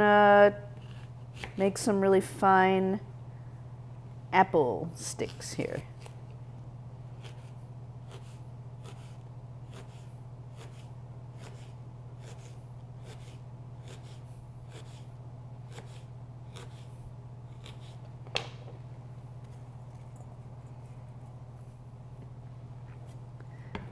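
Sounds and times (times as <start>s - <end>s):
steady low hum: 0.0s - 23.9s
knife cutting on plastic board: 7.2s - 15.1s, 15.7s - 18.1s.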